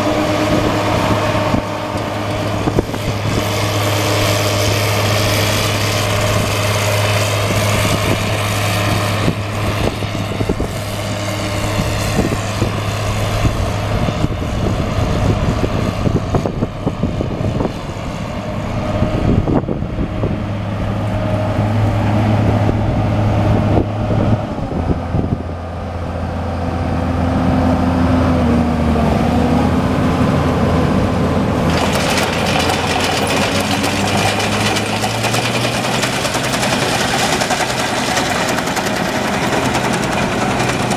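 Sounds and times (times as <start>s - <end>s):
combine diesel engine running: 0.0s - 40.9s.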